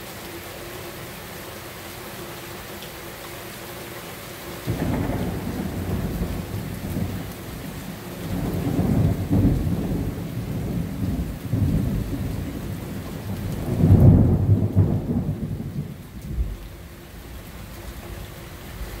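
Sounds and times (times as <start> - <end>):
thunder rumbling: 4.7 - 16.9.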